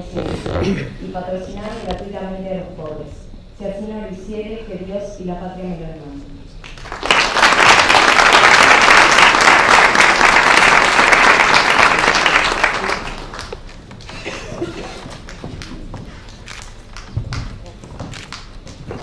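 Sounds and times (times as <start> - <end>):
group applauding: 6.6 - 17.5.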